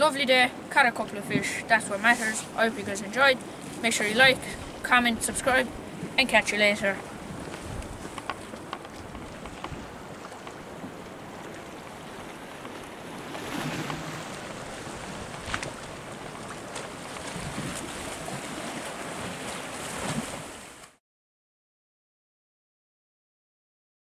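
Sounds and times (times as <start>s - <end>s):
sea waves washing against rocks: 1.1s - 21.0s
wind on microphone: 3.7s - 11.4s, 12.0s - 20.6s.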